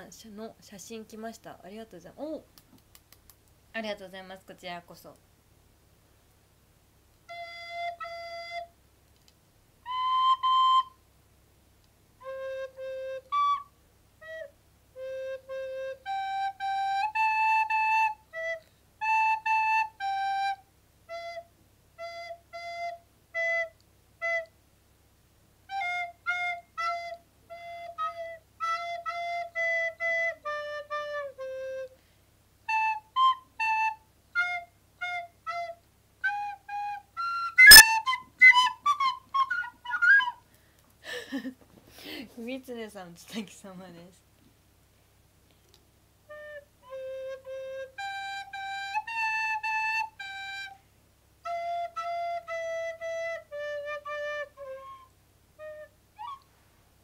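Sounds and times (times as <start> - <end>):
recorder slow melody: 7.2 - 8.8, 9.8 - 11.0, 12.2 - 24.6, 25.6 - 32.0, 32.6 - 40.4, 46.2 - 50.8, 51.4 - 56.5.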